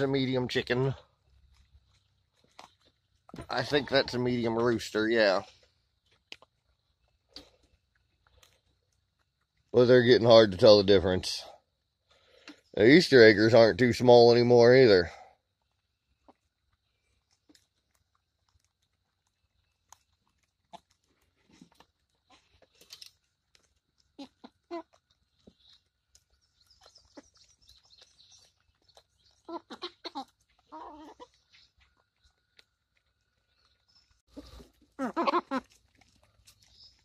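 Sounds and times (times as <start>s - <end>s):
chickens clucking: 0.0s - 7.9s, 24.0s - 33.2s
chickens pecking clicks: 6.0s - 10.8s, 15.6s - 37.0s.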